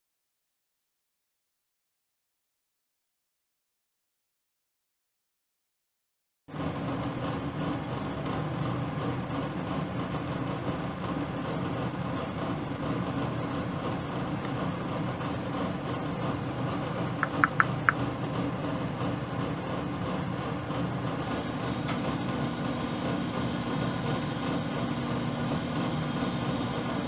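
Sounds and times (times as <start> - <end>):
steady machine hum: 6.5 - 27.0
short high beeps: 17.2 - 18.0.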